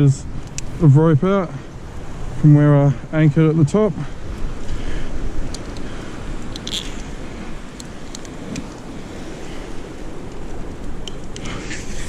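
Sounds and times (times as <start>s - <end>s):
wind on microphone: 0.0s - 12.0s
rope pulley clicking: 5.4s - 7.1s.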